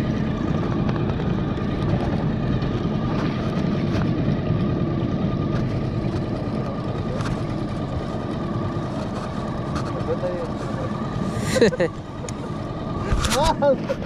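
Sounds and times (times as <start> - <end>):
small outboard motor drone: 0.0 - 14.0
thin steady whine: 0.0 - 14.0.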